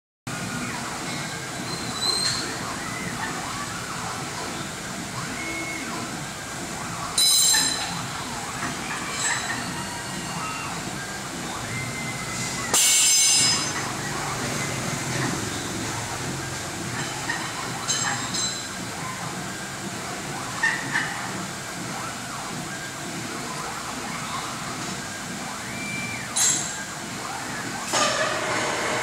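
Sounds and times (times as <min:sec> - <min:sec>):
workshop noise: 0:00.3 - 0:29.0
cnc router axes whining: 0:00.4 - 0:17.9
loud bursts with ringing tones: 0:07.0 - 0:16.2.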